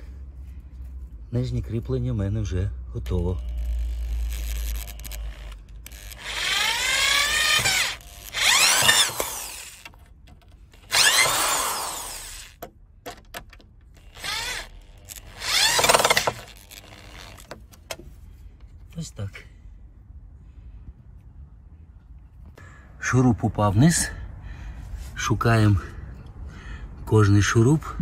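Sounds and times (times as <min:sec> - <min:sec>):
cordless drill motor whine: 0:03.4 - 0:09.9, 0:10.7 - 0:12.6, 0:14.0 - 0:17.5.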